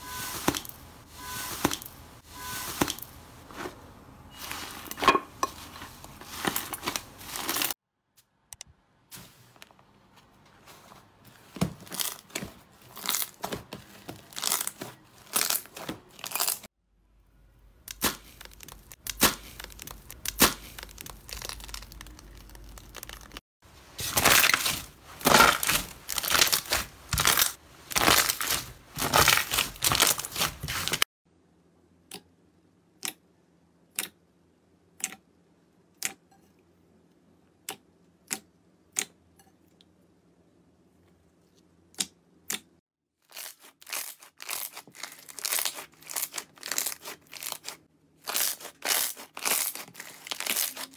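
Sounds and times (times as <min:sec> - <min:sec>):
slime crackling and squelching: 0:05.6 - 0:07.8, 0:11.8 - 0:16.7, 0:17.8 - 0:31.1, 0:43.2 - 0:50.9.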